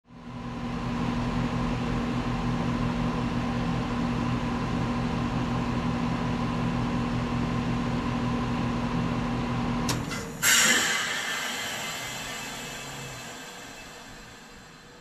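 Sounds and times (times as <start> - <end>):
heat pump hum and fan: 0.1 - 15.0
heat pump click: 9.8 - 14.6.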